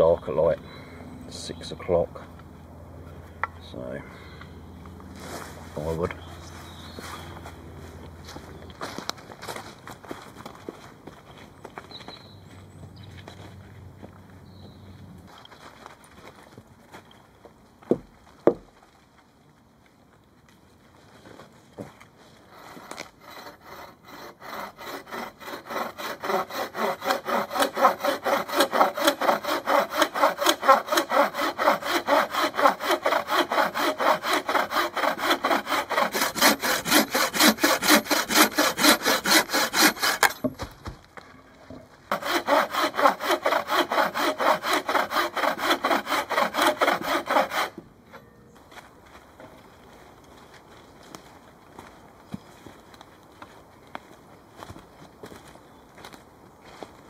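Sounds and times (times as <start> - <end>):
hand saw cutting wood: 22.4 - 40.8, 42.1 - 47.8.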